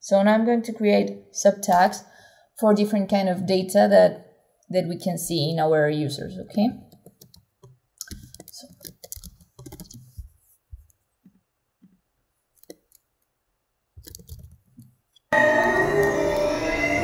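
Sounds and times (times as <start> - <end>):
keyboard typing: 6.9 - 11.0, 12.6 - 13.1, 14.0 - 15.0
mouse clicks: 12.6 - 13.0
loud music: 15.4 - 17.0.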